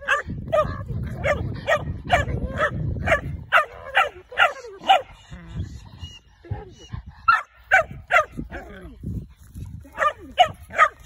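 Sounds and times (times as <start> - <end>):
dog barking: 0.0 - 5.1, 7.3 - 8.4, 10.0 - 11.0.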